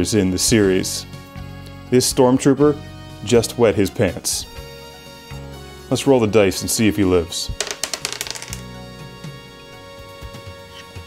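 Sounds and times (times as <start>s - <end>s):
background music: 0.0s - 11.0s
die clattering on a table: 7.6s - 8.7s.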